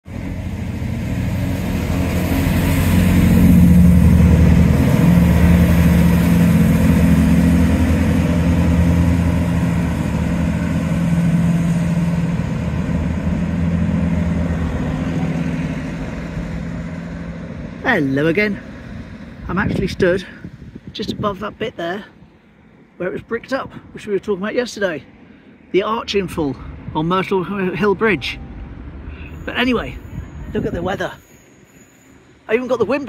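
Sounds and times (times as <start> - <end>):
vehicle engine running at low revs: 0.1 - 21.0.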